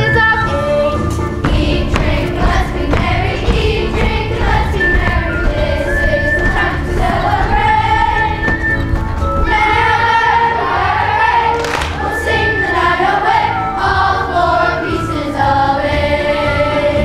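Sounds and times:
instrumental accompaniment: 0.0s - 17.0s
children singing in chorus: 9.4s - 17.0s.

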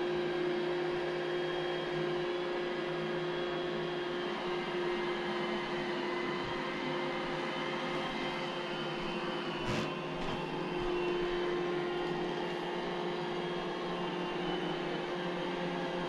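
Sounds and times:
robot vacuum running: 4.9s - 14.9s.

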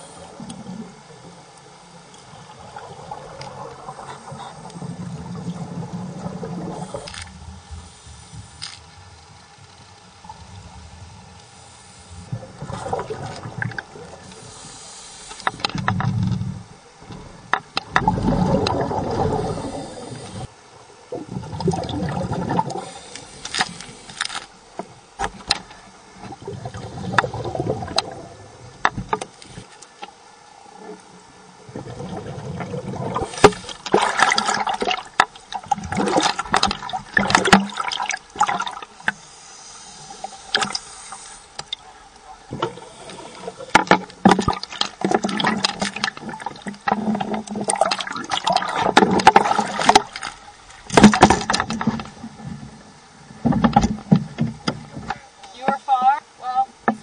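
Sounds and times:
water sloshing and splashing: 12.2s - 14.5s, 15.3s - 20.5s, 21.1s - 29.8s, 31.6s - 39.4s, 40.1s - 52.8s
underwater regulator bubbling: 17.8s - 20.5s, 26.2s - 29.2s, 31.7s - 52.4s.

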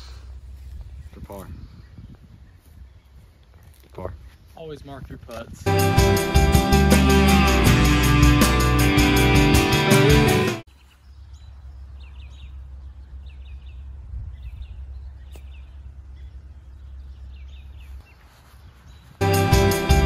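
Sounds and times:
songbirds chirping: 0.0s - 6.2s, 10.2s - 20.0s
rock guitar music: 5.7s - 10.6s, 19.2s - 20.0s
low steady rumble: 11.0s - 17.9s.

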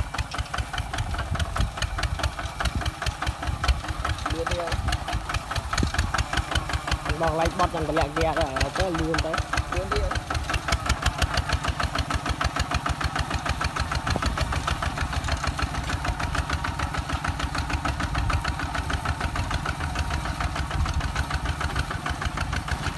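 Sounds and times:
diesel tractor engine chugging: 0.0s - 22.9s.

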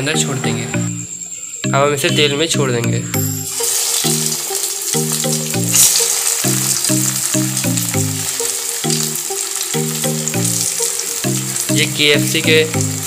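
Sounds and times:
background music: 0.0s - 13.0s
food deep-frying in oil: 3.4s - 13.0s.

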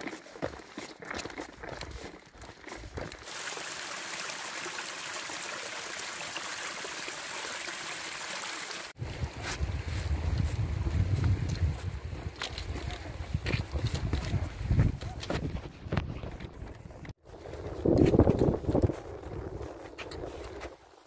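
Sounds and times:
footsteps on a trail: 0.0s - 3.4s, 9.0s - 21.0s
stream of running water: 3.0s - 9.2s
wind buffeting microphone: 9.0s - 20.6s.

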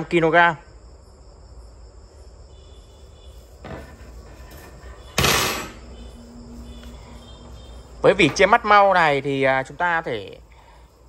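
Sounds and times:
metal racks clattering: 3.6s - 6.0s.

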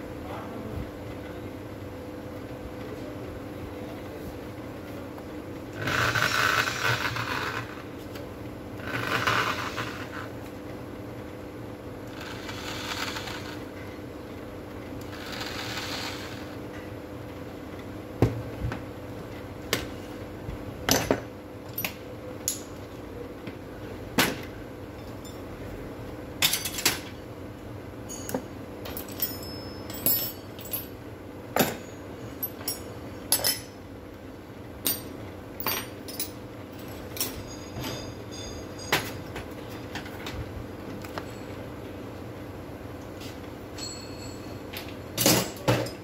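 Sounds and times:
steady background hum: 0.0s - 46.0s
metal tools clinking: 28.1s - 31.0s, 31.6s - 33.8s, 34.9s - 40.2s.

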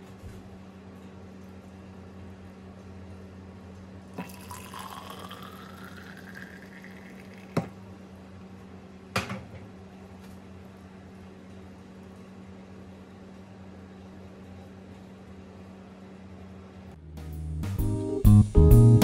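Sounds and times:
liquid pouring into vessel: 4.2s - 7.8s.

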